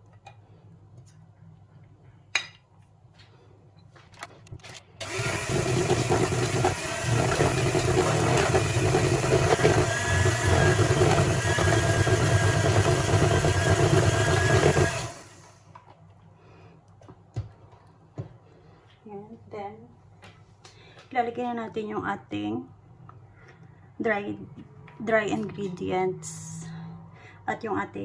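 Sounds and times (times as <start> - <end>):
electric hand mixer running: 5.0 - 15.6.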